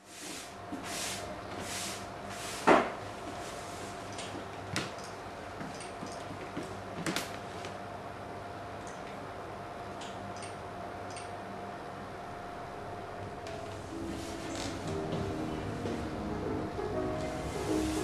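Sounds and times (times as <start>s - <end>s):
hand brushing across paper: 0.0s - 2.7s, 14.0s - 14.6s
faint steady hum: 0.0s - 18.0s.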